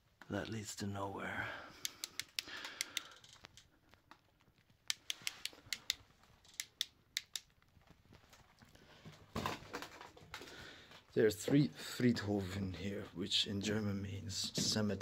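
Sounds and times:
quiet hiss: 0.0s - 9.5s
faint sharp clicks: 1.8s - 7.6s.

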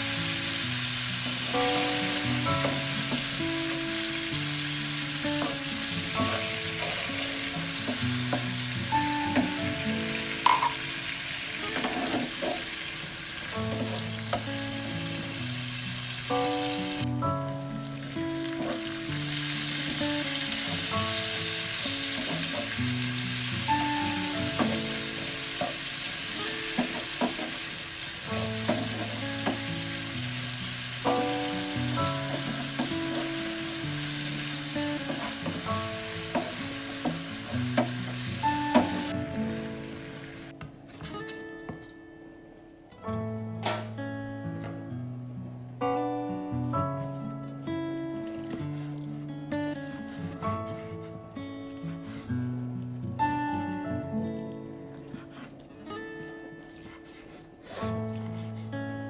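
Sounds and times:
background music: 0.0s - 11.2s, 13.5s - 27.2s, 28.2s - 40.5s
food sizzling in oil: 0.0s - 40.5s.

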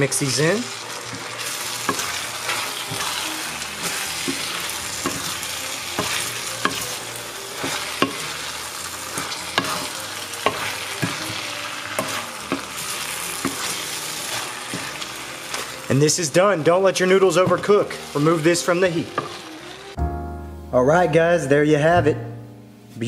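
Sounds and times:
noodles sizzling in wok: 0.0s - 20.0s
spatula scraping pan: 0.4s - 15.9s.

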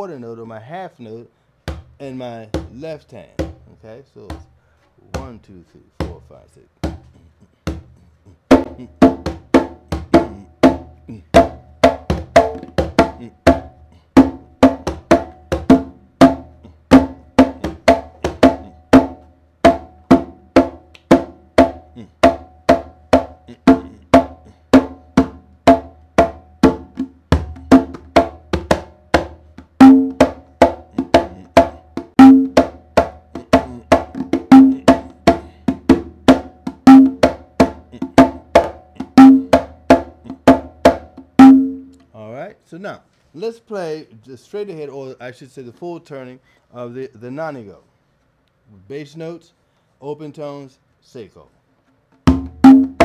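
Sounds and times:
congas played by hand: 1.6s - 42.0s, 51.8s - 53.0s.

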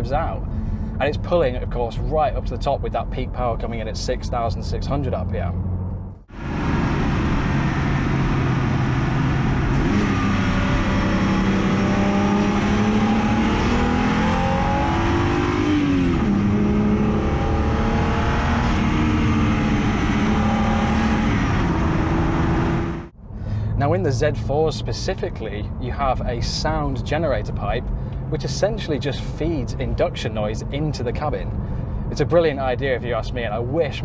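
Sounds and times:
car engine accelerating hard: 5.5s - 24.4s.

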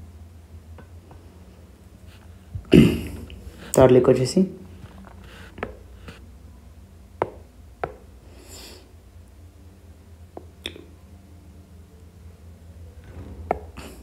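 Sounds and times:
steady low hum: 0.0s - 14.0s
stylus tapping on tablet screen: 7.2s - 8.1s.

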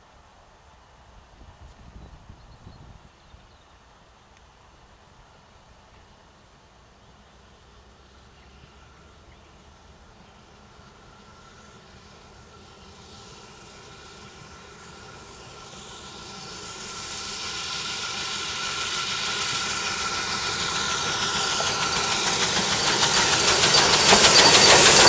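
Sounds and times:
steam locomotive exhaust beats: 5.2s - 25.0s
steam hissing: 7.4s - 25.0s.

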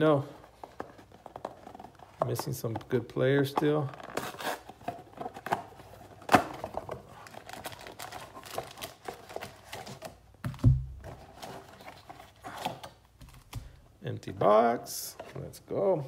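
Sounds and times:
foil card packs rustling: 0.0s - 10.3s.

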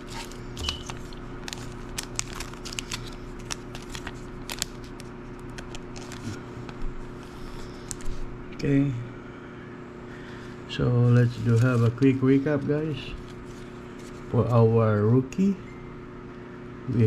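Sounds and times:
plastic card sleeve crinkling: 0.0s - 8.2s, 11.1s - 14.7s.

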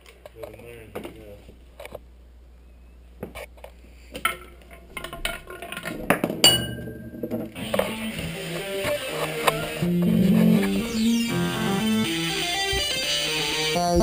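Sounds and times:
ringing ping: 6.4s - 7.3s
music from a speaker: 7.9s - 14.0s.

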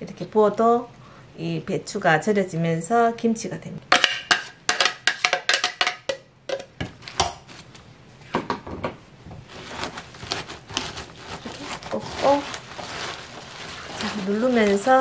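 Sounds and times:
spoon tapping plastic blender jar: 4.0s - 7.0s
hands rustling wet leaves: 9.5s - 15.0s.

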